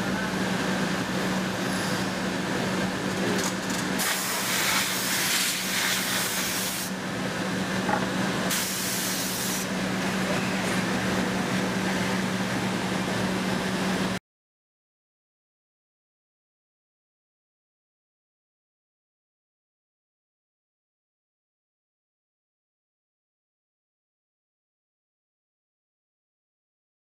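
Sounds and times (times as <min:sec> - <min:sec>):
factory machinery droning: 0:00.0 - 0:14.2
air hissing: 0:04.0 - 0:07.0, 0:08.5 - 0:09.7.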